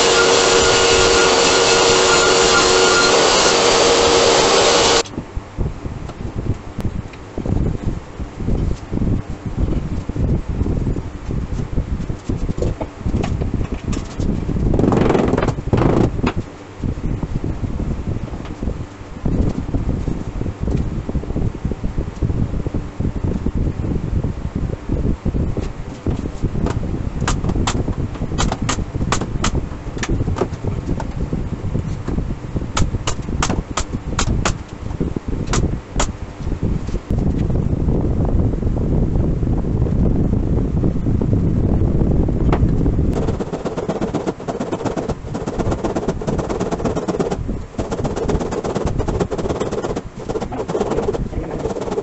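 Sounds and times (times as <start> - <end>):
pneumatic nail gun firing: 0.0 - 5.0
steady background rumble: 5.0 - 52.0
low rumble: 36.5 - 52.0.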